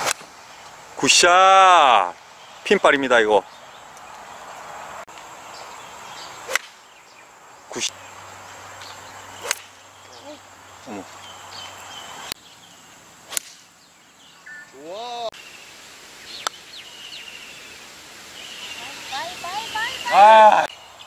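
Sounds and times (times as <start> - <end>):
golf clubs striking balls: 0.0 - 0.3, 6.5 - 6.8, 9.4 - 9.8
club swish: 6.5 - 6.8.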